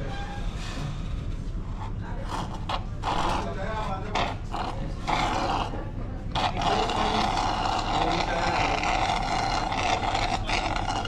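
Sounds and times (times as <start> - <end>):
slurping through a straw: 1.7 - 11.0.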